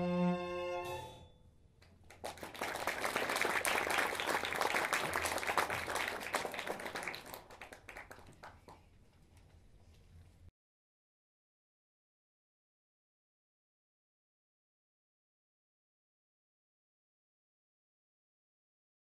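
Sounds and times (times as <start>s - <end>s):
string ensemble chord: 0.0s - 1.2s
audience applauding: 2.0s - 8.8s.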